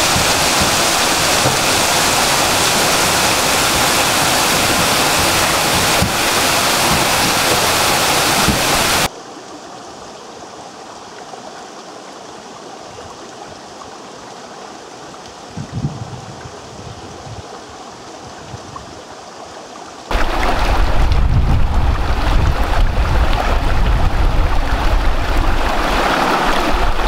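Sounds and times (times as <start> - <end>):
small waterfall pouring onto stones: 0.0 - 9.1, 20.1 - 27.0
stream running over rocks: 0.0 - 27.0
low rumble: 20.2 - 25.7.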